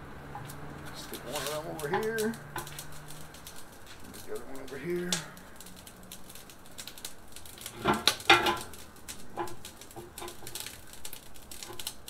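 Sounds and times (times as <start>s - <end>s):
metal clanks and knocks: 7.7s - 10.7s.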